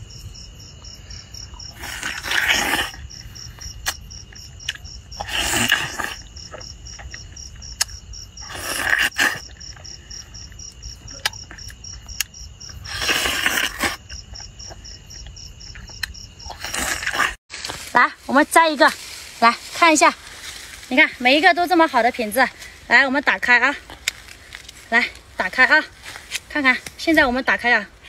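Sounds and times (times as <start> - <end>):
crickets chirping: 0.0 - 28.0
person slurping and munching fruit: 1.5 - 3.2, 4.7 - 10.1, 12.8 - 14.8, 15.8 - 17.9.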